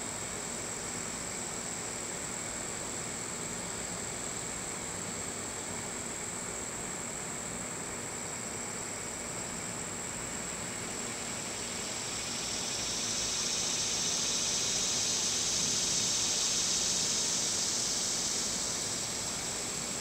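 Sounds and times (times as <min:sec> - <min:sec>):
high insect buzz: 0:10.6 - 0:20.0
lower insect buzz: 0:10.6 - 0:20.0.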